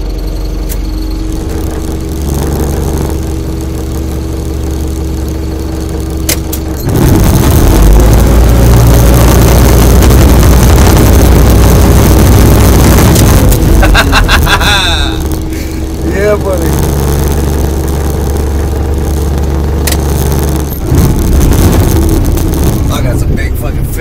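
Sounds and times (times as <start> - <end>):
loud rough engine rumble: 0.0 - 24.0
vehicle engine idling: 0.0 - 24.0.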